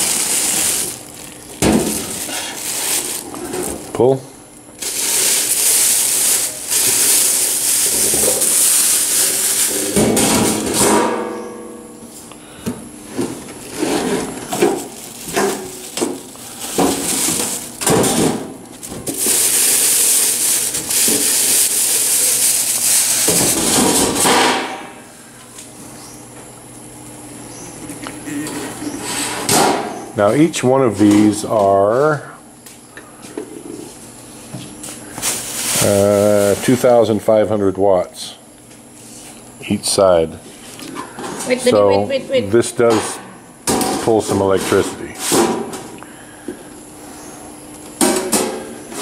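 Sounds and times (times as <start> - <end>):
plastic wrapping crinkling: 0.0 - 3.9, 4.8 - 10.0, 13.6 - 24.2, 35.1 - 36.8.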